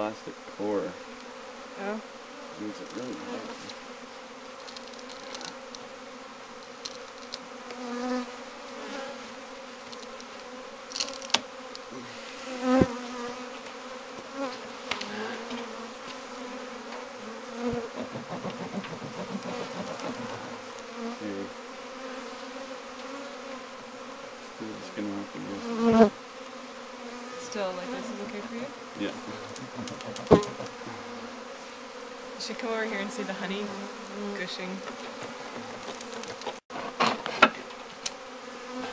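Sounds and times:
bees buzzing: 0.0s - 38.9s
sharp knocks: 17.7s - 20.7s, 29.4s - 31.0s.

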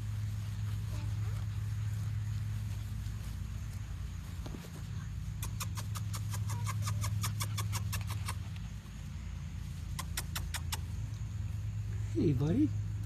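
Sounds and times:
steady low hum: 0.0s - 13.0s
quick sharp clicks: 10.0s - 10.9s.

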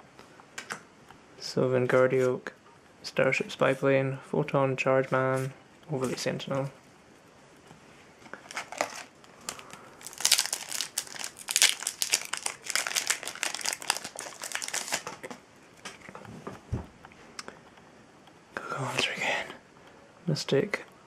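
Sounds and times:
wrapper crinkling and tearing: 8.3s - 15.4s
soft thump: 16.4s - 16.9s.

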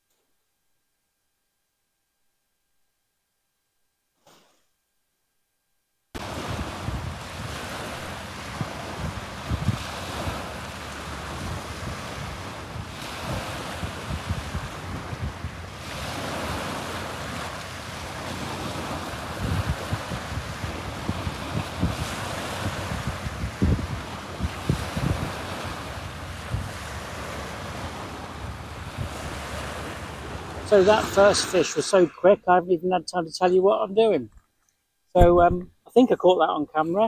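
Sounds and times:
wind buffeting microphone: 6.2s - 32.0s
small waves on shore: 6.2s - 32.6s.

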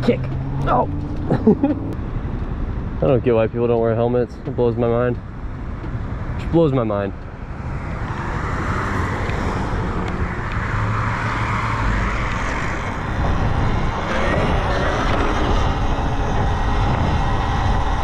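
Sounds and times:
wind rushing over microphone: 7.4s - 18.0s.

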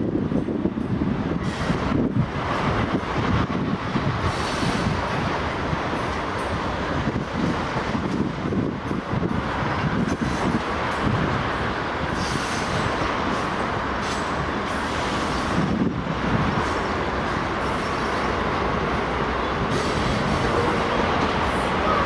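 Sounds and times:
train wheels on rail: 0.0s - 22.0s.

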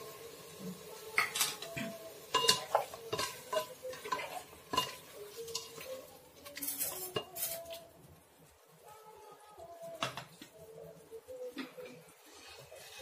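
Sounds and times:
spatula scraping metal pot: 12.2s - 13.0s.

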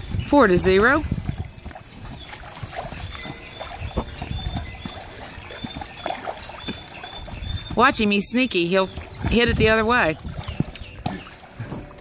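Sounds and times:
pool water splashing: 0.0s - 12.0s
water slaps: 0.2s - 12.0s.

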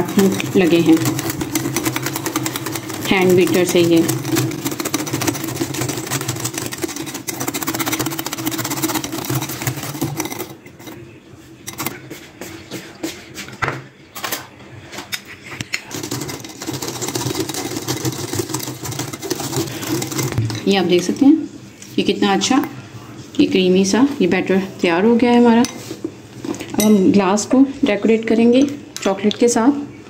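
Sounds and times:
whisk rattling against glass bowl: 0.0s - 11.0s, 11.6s - 12.2s, 15.8s - 21.3s.

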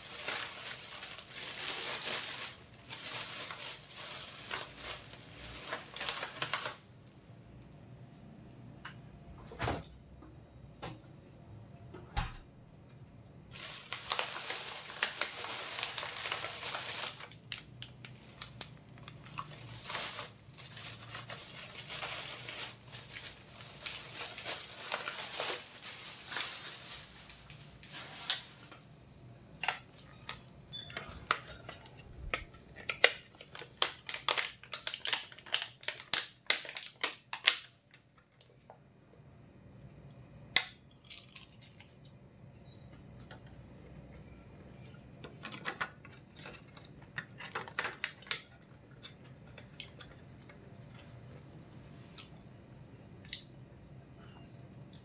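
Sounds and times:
plastic bags rustling: 0.0s - 7.2s, 13.5s - 28.9s, 29.6s - 37.7s, 45.3s - 50.2s
plastic packaging crackling: 0.0s - 7.2s, 13.5s - 28.9s, 29.5s - 38.5s, 40.6s - 42.1s, 45.2s - 51.1s.

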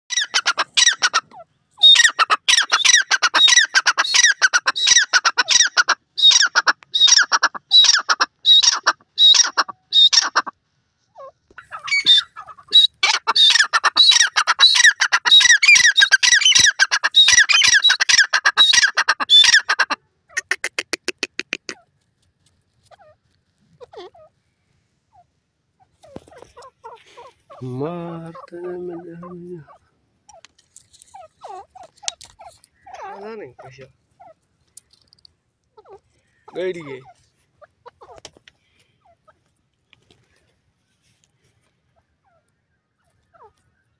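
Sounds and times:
francolin shrill calling: 1.8s - 10.4s, 11.2s - 19.7s.

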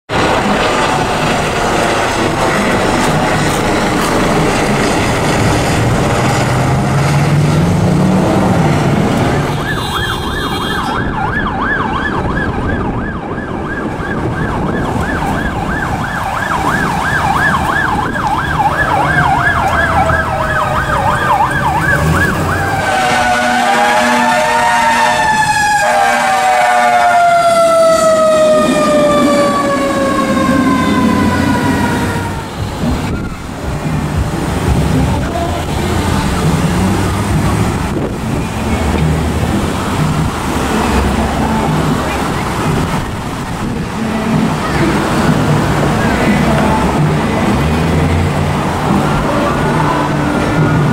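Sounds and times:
engine noise: 0.1s - 50.9s
falling siren wail: 0.1s - 50.9s
warbling yelp siren: 9.4s - 33.7s
horn blast: 19.1s - 32.7s.

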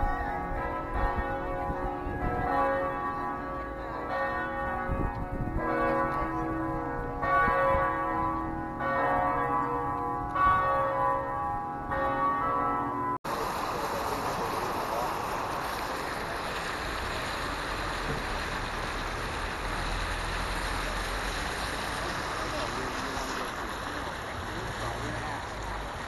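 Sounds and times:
church bells ringing: 0.0s - 15.1s.

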